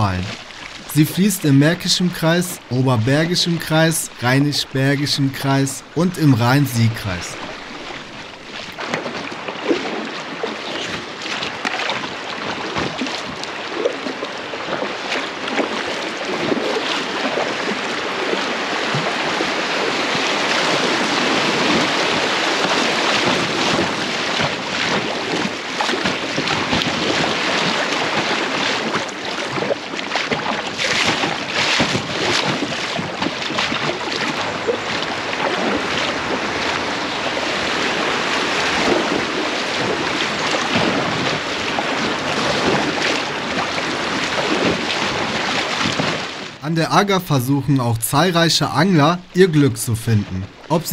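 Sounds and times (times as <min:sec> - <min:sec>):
river water rushing and splashing: 0:00.0 - 0:50.9.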